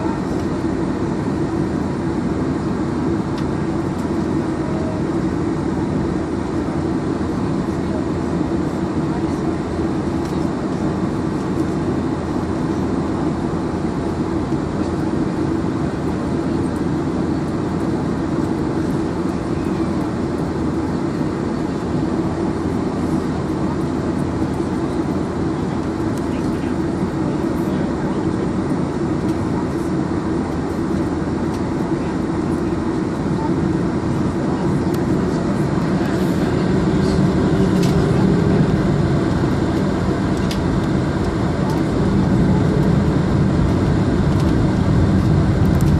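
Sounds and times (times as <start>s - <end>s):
aircraft cabin engine drone: 0.0s - 45.9s.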